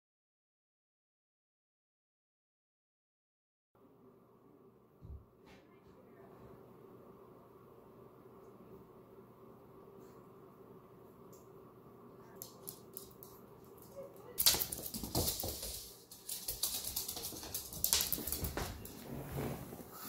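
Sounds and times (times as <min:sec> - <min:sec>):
dog claws clicking on floor: 0:12.3 - 0:19.0.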